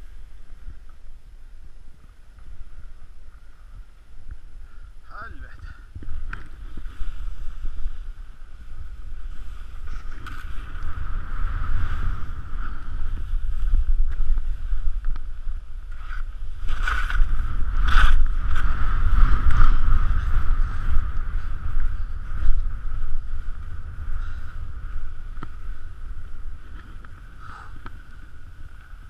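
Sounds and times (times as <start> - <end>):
wind buffeting microphone: 0.0 - 29.0
skis scraping over snow: 6.0 - 29.0.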